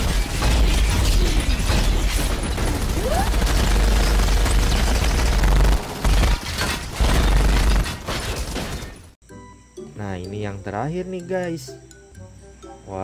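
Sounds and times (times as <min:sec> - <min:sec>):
rapid gunfire: 0:00.0 - 0:09.0.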